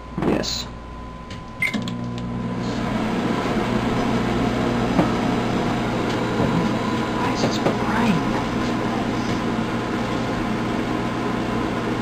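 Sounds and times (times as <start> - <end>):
microwave oven humming: 0.0 - 12.0
microwave click: 1.3 - 2.3
microwave beep: 1.5 - 2.6.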